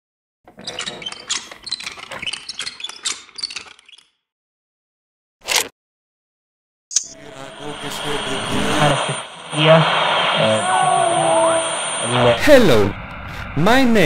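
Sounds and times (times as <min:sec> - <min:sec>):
antenna scraping: 0:07.0 - 0:13.6.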